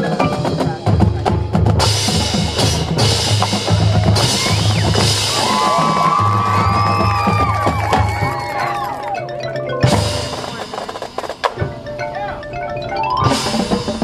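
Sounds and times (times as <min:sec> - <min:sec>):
bass drum notes: 0:00.0 - 0:08.4
snare drums: 0:00.0 - 0:09.1, 0:09.8 - 0:11.9.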